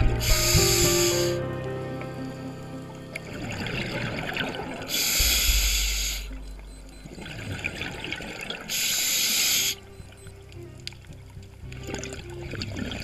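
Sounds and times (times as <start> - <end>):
diver breathing through regulator: 0.2 - 1.4, 4.9 - 6.4, 8.7 - 9.9.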